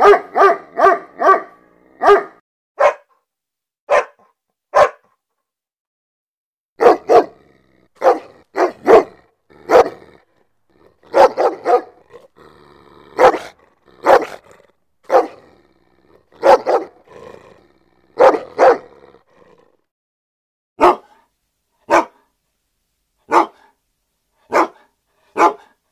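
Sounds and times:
dog barking angrily: 0.0s - 3.1s, 3.9s - 4.2s, 4.8s - 5.1s, 6.8s - 19.8s, 20.8s - 21.2s, 21.9s - 22.2s, 23.3s - 23.7s, 24.5s - 25.8s.

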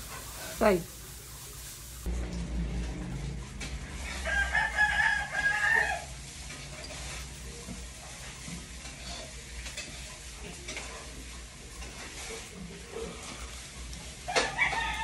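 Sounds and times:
rooster crowing: 4.0s - 6.2s, 14.3s - 15.0s.

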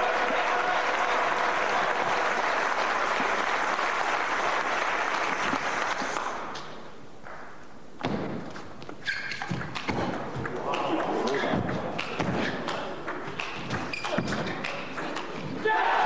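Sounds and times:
spectators applauding: 0.0s - 6.4s.

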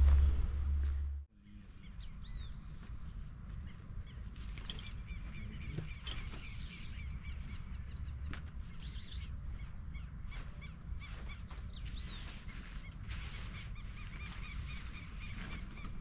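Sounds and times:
steady low rumble: 0.0s - 4.3s
birds chirping: 0.0s - 16.0s.

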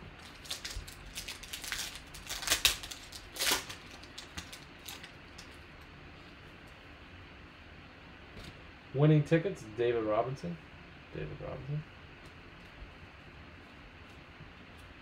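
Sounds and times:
foil wrapper crackling: 0.2s - 5.7s.

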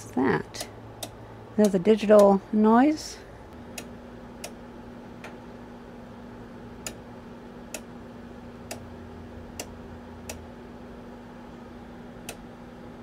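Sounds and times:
steady low hum: 0.0s - 13.0s
rotary switch knob clicks: 12.2s - 12.4s.

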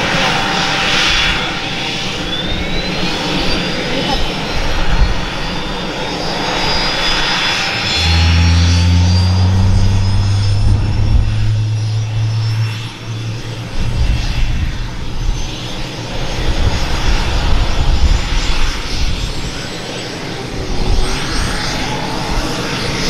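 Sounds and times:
helicopter turbine engine starting: 0.0s - 23.0s
main rotor turning: 7.6s - 16.0s
deep steady hum: 7.7s - 16.8s.

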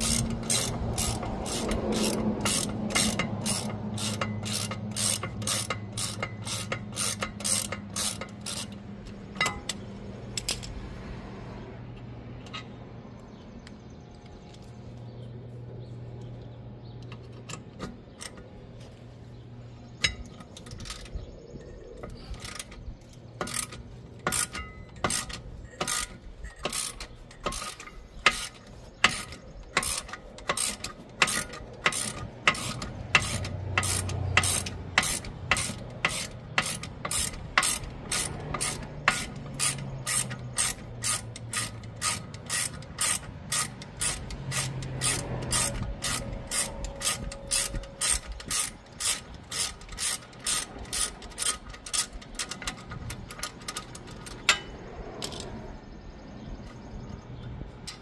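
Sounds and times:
ratchet wrench clicking: 0.0s - 10.8s, 20.0s - 21.2s, 21.8s - 55.6s.

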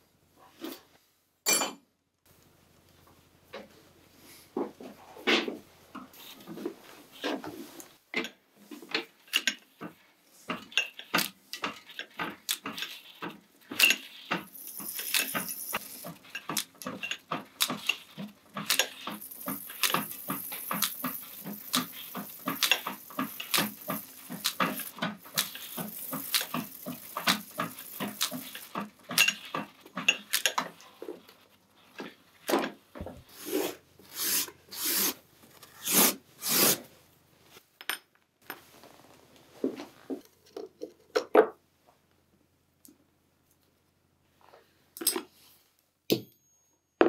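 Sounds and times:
wire wheel brushing metal: 10.5s - 32.1s.

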